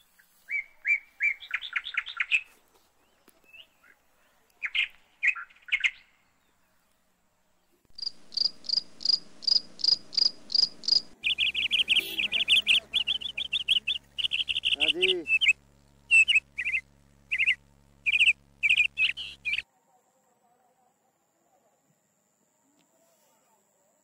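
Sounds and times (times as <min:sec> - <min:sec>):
animal chirping: 0:08.0 - 0:19.6.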